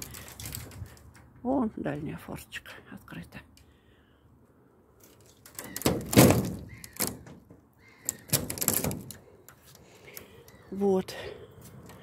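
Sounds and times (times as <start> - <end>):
rustling and scraping: 0.0 - 1.4, 5.0 - 10.4.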